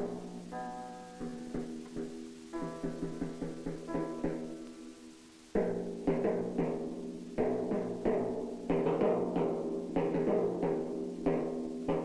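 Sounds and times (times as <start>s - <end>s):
timpani struck with mallets: 0.0s - 4.7s.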